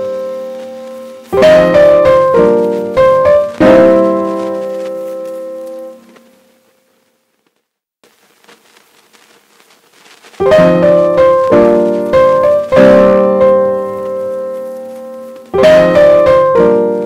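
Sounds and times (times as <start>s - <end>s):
piano chords: 0.0s - 6.7s, 10.4s - 17.0s.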